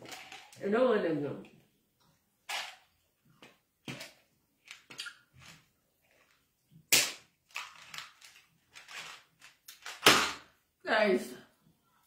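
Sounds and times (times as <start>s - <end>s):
sharp clicks and cracks: 6.9s - 10.3s.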